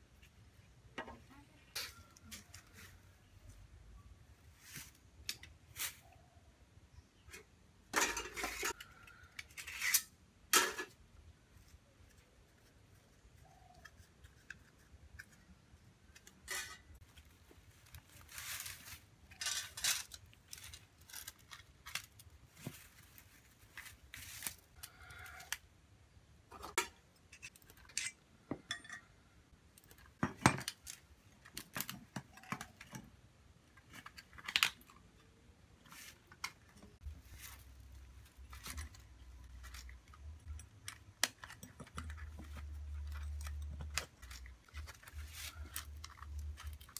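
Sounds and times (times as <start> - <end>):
sticks rustling: 1.0 - 3.6, 4.4 - 6.3, 11.5 - 25.6, 35.8 - 46.9.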